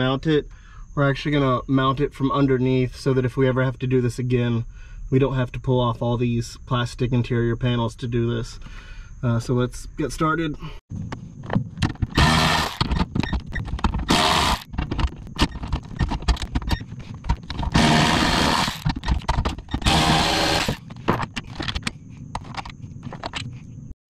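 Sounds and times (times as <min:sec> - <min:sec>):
socket and bolts rattling: 0:11.4 - 0:23.5
cordless ratchet whirring: 0:11.8 - 0:21.8.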